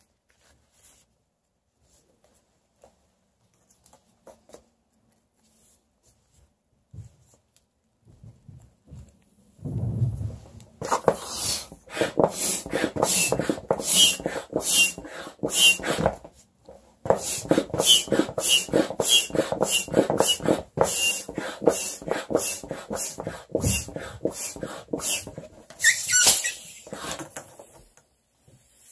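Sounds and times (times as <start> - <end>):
balloon squeaking: 10.8 - 16.2, 17.1 - 27.3
foot pump puffing air: 10.8 - 16.3, 17.0 - 27.9.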